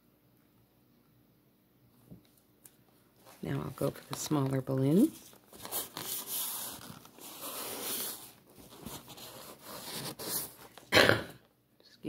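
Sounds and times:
person sneezing: 10.9s - 11.4s.

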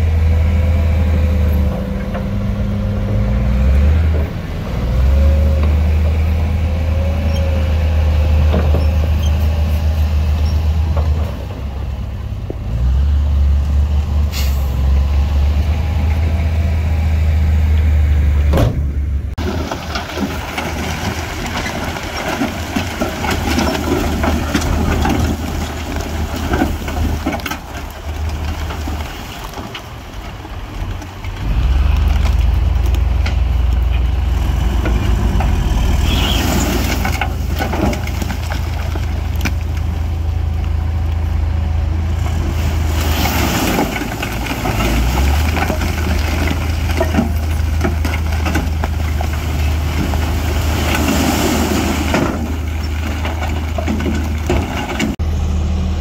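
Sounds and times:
diesel engine drone: 0.0s - 56.0s
rattling and clattering knocks: 18.5s - 31.2s, 52.0s - 55.2s.

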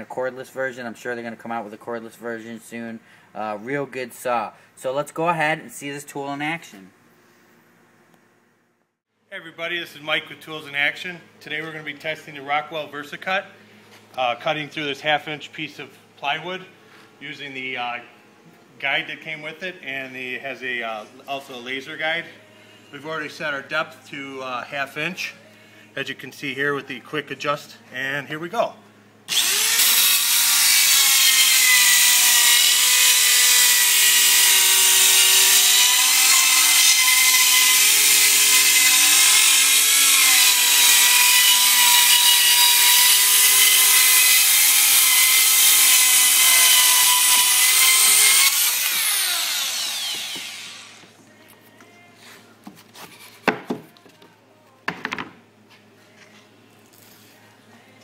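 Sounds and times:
circular saw cutting plywood: 29.3s - 51.1s.

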